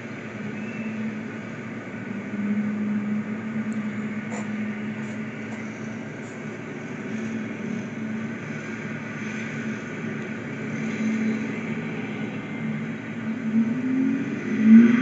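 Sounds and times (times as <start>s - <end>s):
road traffic through window: 0.0s - 15.0s
steady low hum: 0.0s - 15.0s.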